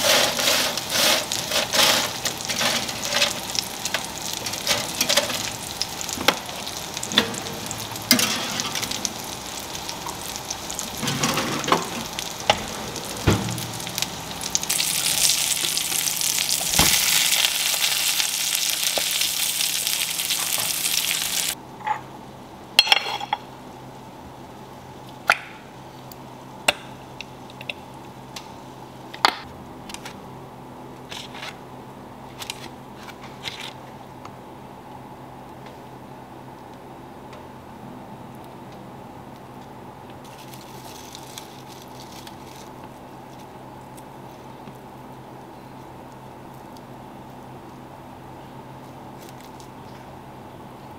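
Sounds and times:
patties sizzling in oil: 0.0s - 21.6s.

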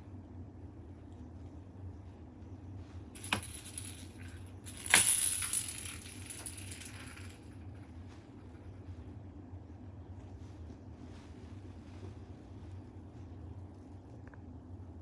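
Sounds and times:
ball toy hitting hard floor: 3.2s - 7.4s
ball jingling and rolling: 3.2s - 7.5s.

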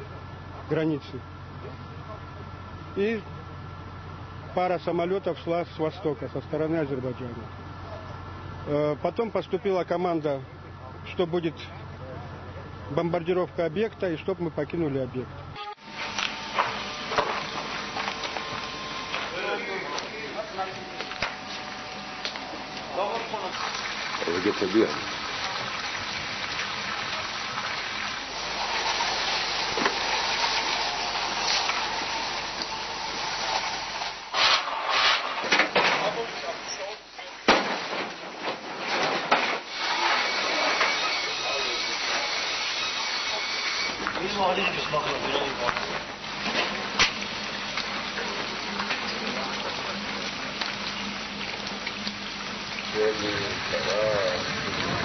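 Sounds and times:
fire hose spraying water: 15.8s - 55.0s.

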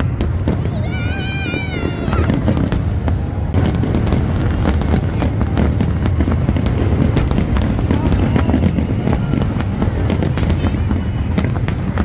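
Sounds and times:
continuous low rumble: 0.0s - 12.0s
fireworks bangs and crackles: 0.0s - 12.0s.

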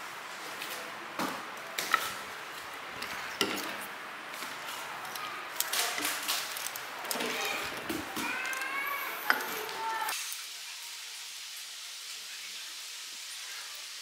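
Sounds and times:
clicks and knocks of handled parts: 1.7s - 9.9s.

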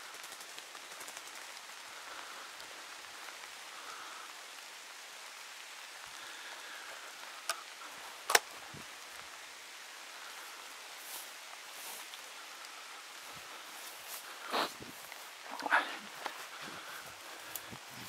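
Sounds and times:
rain on leaves and grass: 0.0s - 18.0s.

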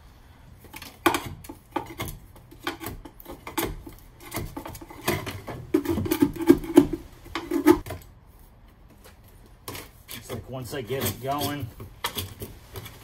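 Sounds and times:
pry bar scraping metal floor: 9.6s - 13.0s.

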